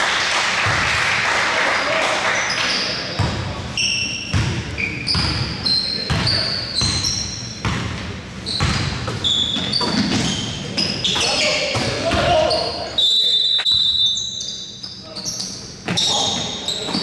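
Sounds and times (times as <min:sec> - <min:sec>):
sneakers squeaking on floor: 0:02.4 - 0:17.0
basketball bouncing on gym floor: 0:04.3 - 0:12.6.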